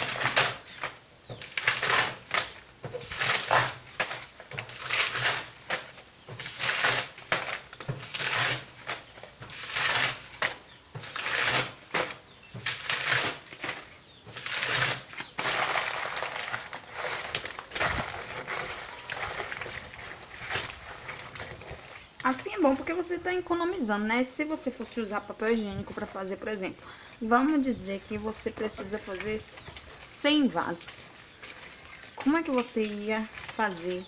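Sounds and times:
paper crumpling and tearing: 4.7s - 5.8s, 6.4s - 21.9s.

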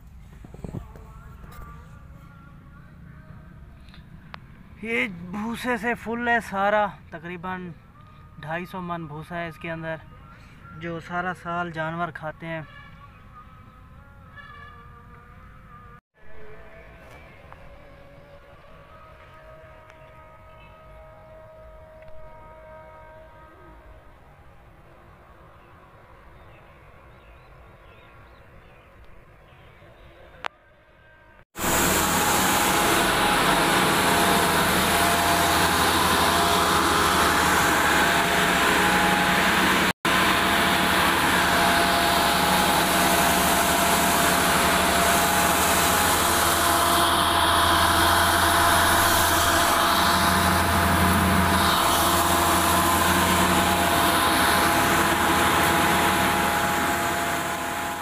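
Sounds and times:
electric motor hum and whirr: 31.6s - 58.0s.

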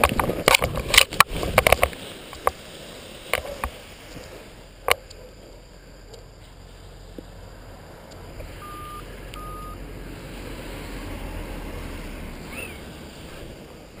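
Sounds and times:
wind buffeting microphone: 0.0s - 6.4s
rustling lines in grass: 0.0s - 14.0s
short electronic beeps: 8.6s - 9.8s.

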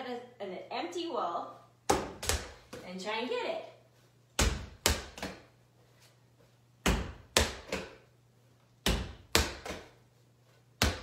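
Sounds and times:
rubber ball thudding against wall: 1.9s - 2.8s, 6.8s - 8.0s.

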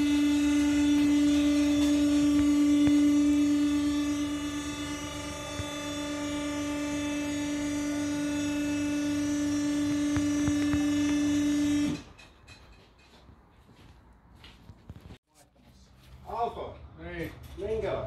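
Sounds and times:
motor humming: 0.0s - 12.0s.

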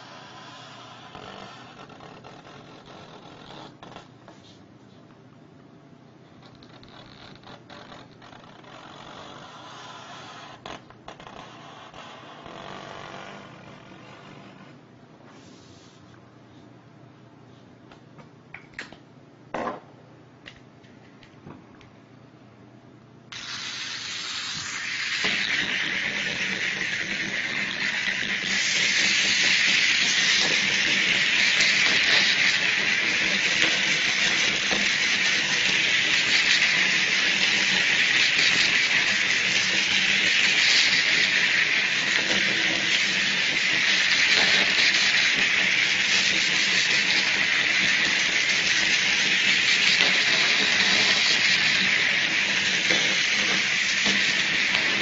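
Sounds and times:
toy robot motors whirring: 23.3s - 55.0s.

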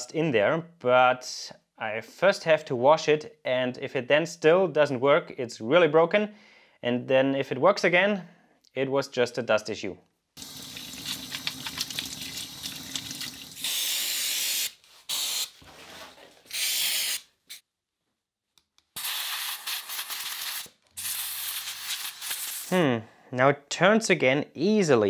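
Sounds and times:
tap water running: 10.4s - 13.8s
aerosol spray can hissing: 13.6s - 15.6s, 16.5s - 17.6s, 19.0s - 22.8s.

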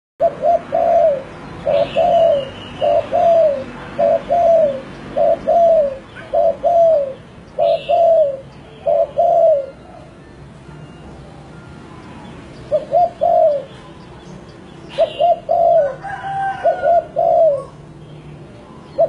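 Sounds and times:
dove cooing: 0.2s - 10.2s, 12.6s - 13.9s, 14.9s - 17.9s.

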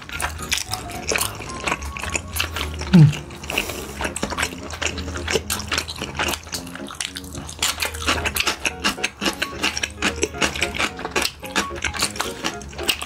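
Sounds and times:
utensils clicking on dishes: 0.0s - 13.0s
wet chewing: 0.0s - 13.0s.

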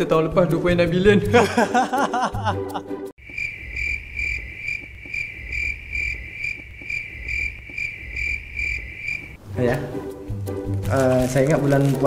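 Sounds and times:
man laughing heartily: 1.3s - 3.0s
crickets chirping: 3.2s - 9.4s.

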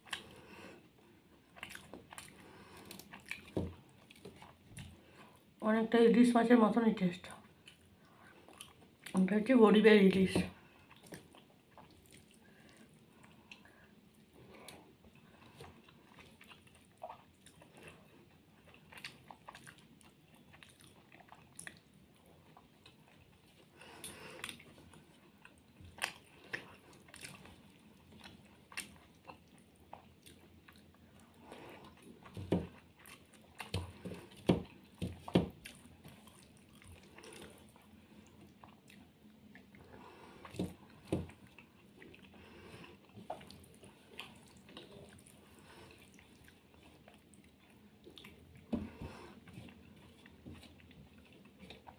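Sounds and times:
chewing and mouth sounds: 0.0s - 5.6s, 7.2s - 9.4s, 10.4s - 51.9s.

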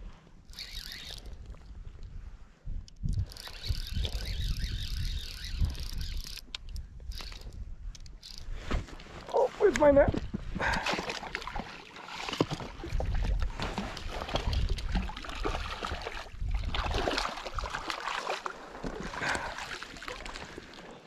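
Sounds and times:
water splashing: 10.7s - 20.9s.

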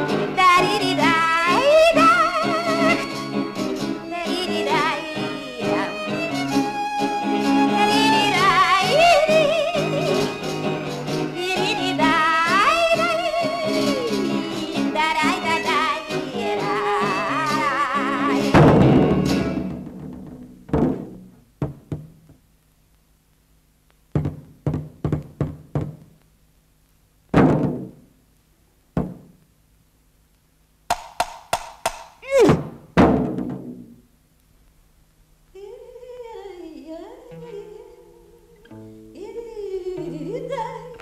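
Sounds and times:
wavering humming or singing: 11.4s - 18.6s
loud crash: 18.5s - 21.3s
hollow thuds and knocks: 18.6s - 22.5s, 24.1s - 26.2s, 27.3s - 28.1s, 28.9s - 29.4s, 30.9s - 34.0s.

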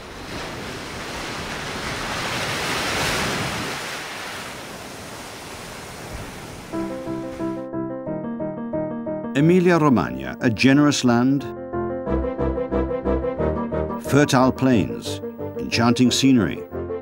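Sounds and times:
keyboard music: 6.7s - 17.0s.

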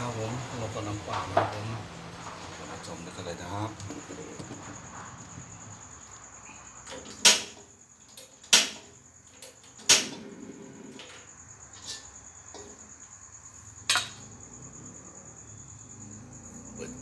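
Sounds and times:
metal ladle clanking on wok: 13.9s - 14.2s.

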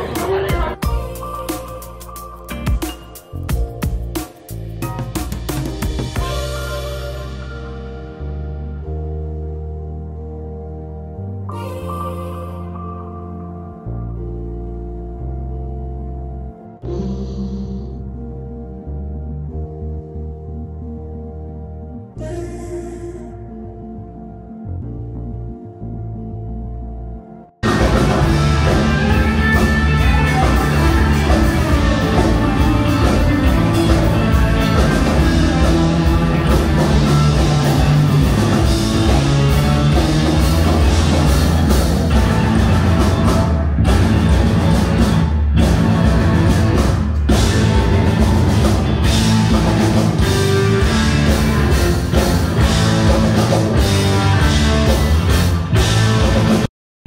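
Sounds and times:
live rock band playing: 0.0s - 8.2s, 27.6s - 56.7s.

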